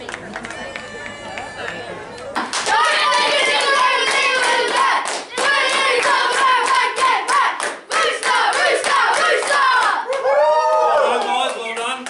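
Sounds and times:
boys clapping fast: 2.4 - 12.0.

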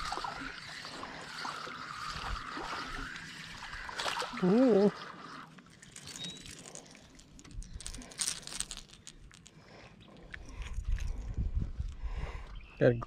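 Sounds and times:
crinkling and rustling: 5.5 - 11.4.

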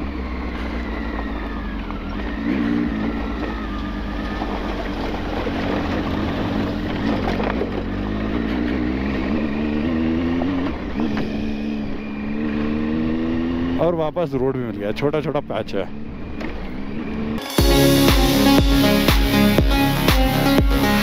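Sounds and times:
motorcycle engine running: 0.0 - 13.6.

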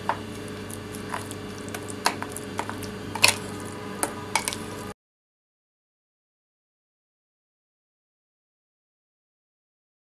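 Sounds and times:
spoon squishing food: 0.0 - 4.8
steady low hum: 0.0 - 5.0.

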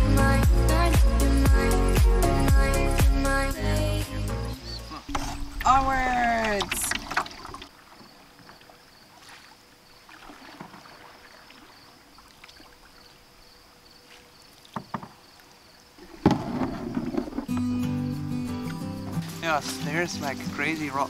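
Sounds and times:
paddle strokes in water: 6.3 - 13.2, 14.0 - 17.6.

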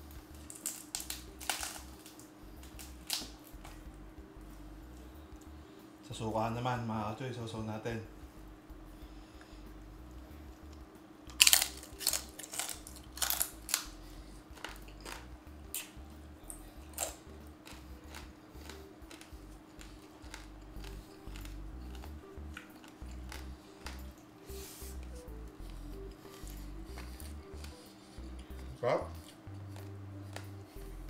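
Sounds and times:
faint steady hum: 0.0 - 31.0
crunching crispy skin: 0.3 - 3.8, 11.3 - 24.1.

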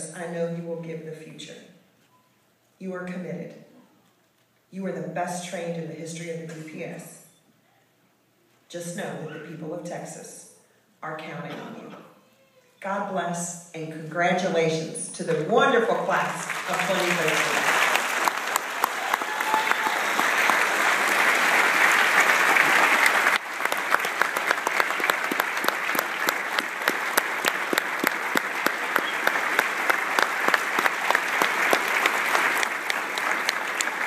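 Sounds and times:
audience applauding: 16.2 - 34.0.

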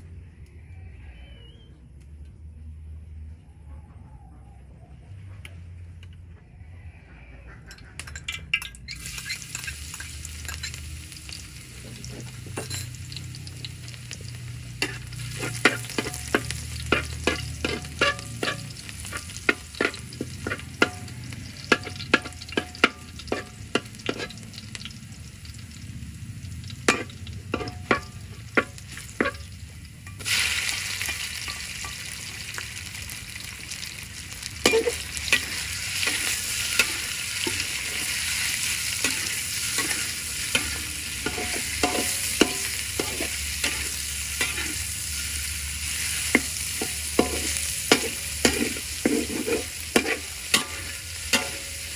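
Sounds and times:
loud sizzle of meat in oil: 8.6 - 51.9
paste frying in oil: 8.7 - 51.9
metal spatula scraping a wok: 8.9 - 24.6, 26.9 - 29.5, 34.6 - 51.9.

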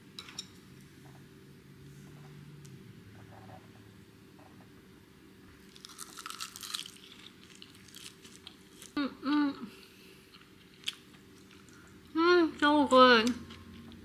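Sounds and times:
crisp seaweed crackling when chewed: 5.7 - 9.0.

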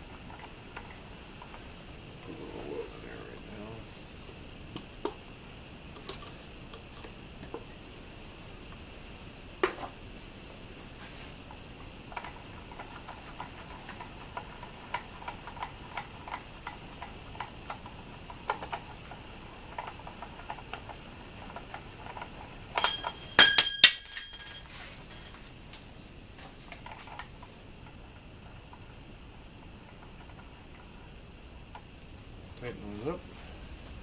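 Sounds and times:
faint ticks and clicks: 11.5 - 22.5
metallic clinks: 22.8 - 25.4.

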